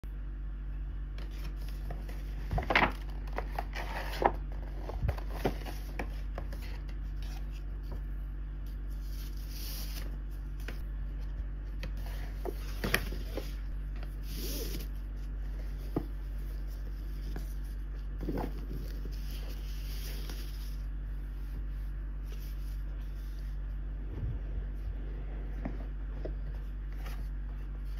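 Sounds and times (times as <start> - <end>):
steady low hum: 0.0 - 27.9
paper rustling and crinkling: 1.2 - 8.1, 11.7 - 20.9.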